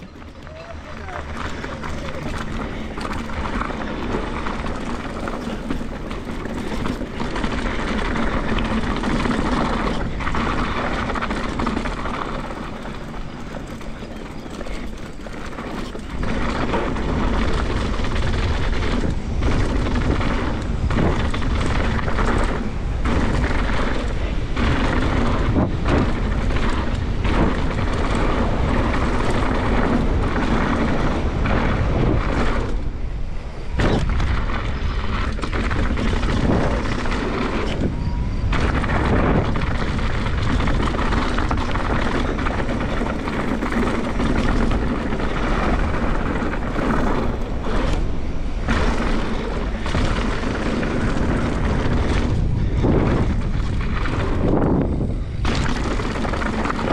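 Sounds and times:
bike tyres rumbling on dirt trail: 0.0 - 56.9
wind buffeting microphone: 0.0 - 56.9.

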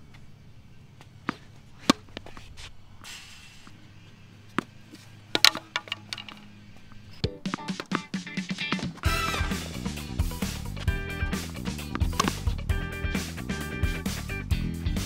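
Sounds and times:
tennis ball bouncing on court: 1.0 - 2.5, 4.5 - 6.5, 7.2 - 12.7
racket hitting tennis ball: 1.0 - 3.8, 4.5 - 14.0
quiet background music: 6.4 - 15.0.

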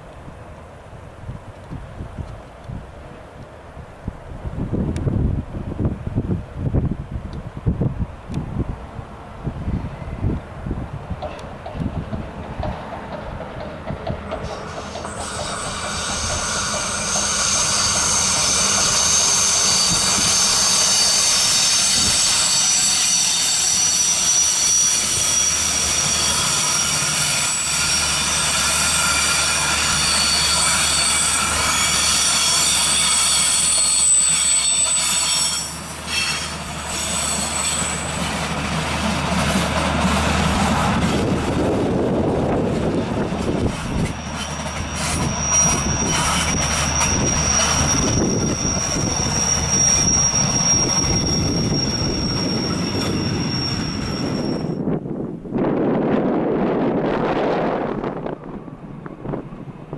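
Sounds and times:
train rolling on rails: 0.0 - 59.9
train wheels squealing: 12.5 - 54.9.

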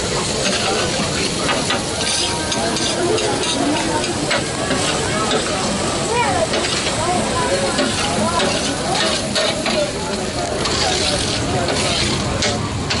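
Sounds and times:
food sizzling on a griddle: 0.0 - 13.0
metal spatula scraping: 1.7 - 4.0, 7.7 - 12.6.

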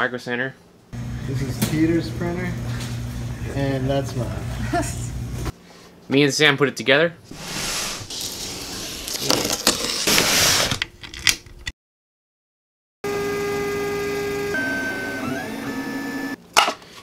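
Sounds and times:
printer stepper motors whining: 13.1 - 16.4.

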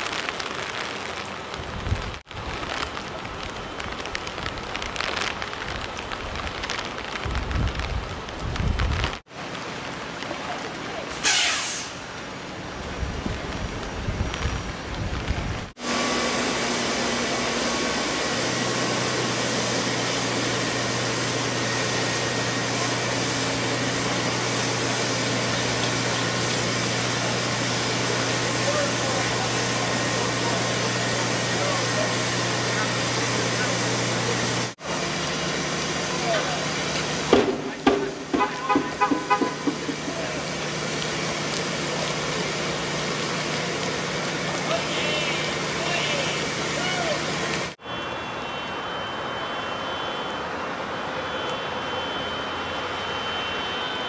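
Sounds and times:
heavy rain hissing: 0.0 - 47.8
low hum of traffic: 0.0 - 54.0
vehicle horn short toots: 11.2 - 11.9, 38.3 - 39.9.

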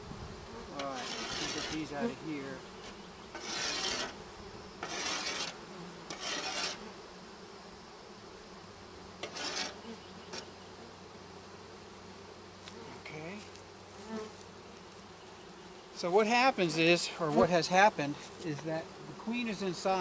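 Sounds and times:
honey bees buzzing: 0.0 - 20.0
short scraping rasps: 0.8 - 2.2, 2.8 - 4.2, 4.8 - 6.9, 9.2 - 10.5.

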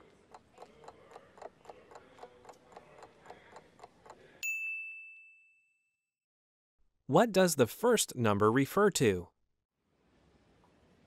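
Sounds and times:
quick clock ticking: 0.0 - 4.2
bright bell ding: 4.4 - 5.9.

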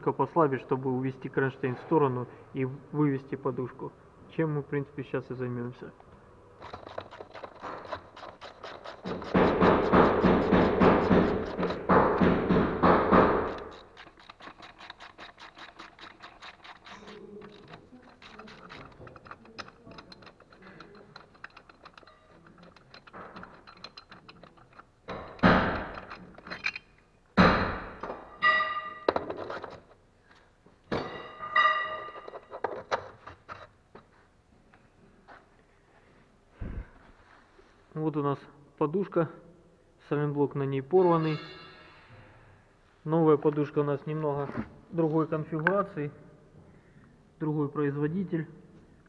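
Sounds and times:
metal knocks and clanks: 6.6 - 26.8, 27.4 - 29.9, 30.9 - 33.7
ratchet wrench clicking: 13.5 - 26.8.

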